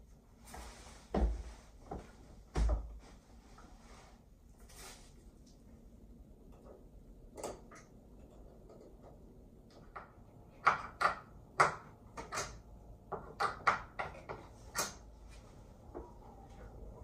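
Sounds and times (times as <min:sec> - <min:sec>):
hard objects knocking: 0:08.6 - 0:15.0.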